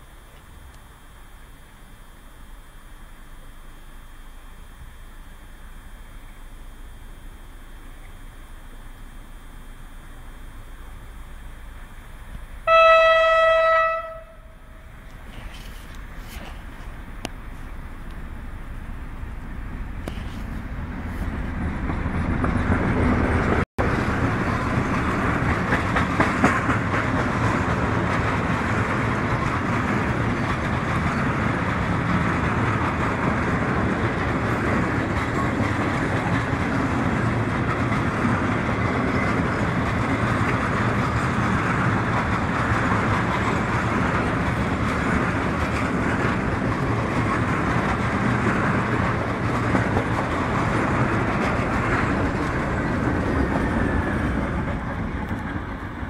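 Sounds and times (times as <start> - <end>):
electric locomotive passing: 0.0 - 56.0
freight wagon wheels rumbling on rail: 0.0 - 56.0.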